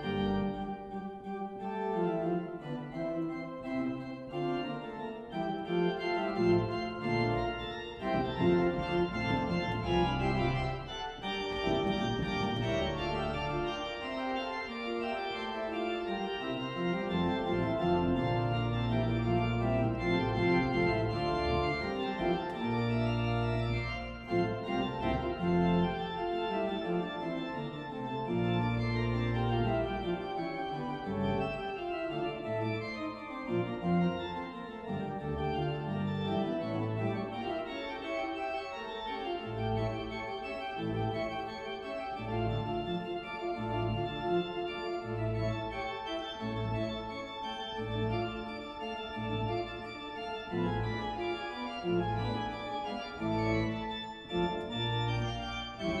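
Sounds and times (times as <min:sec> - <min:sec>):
church organ chords: 0:00.0 - 0:56.0
repeated bass notes: 0:06.3 - 0:13.8.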